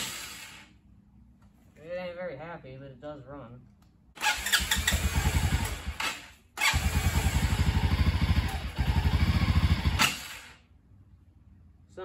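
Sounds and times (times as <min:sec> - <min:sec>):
quad engine running unevenly: 0:04.2 - 0:10.6.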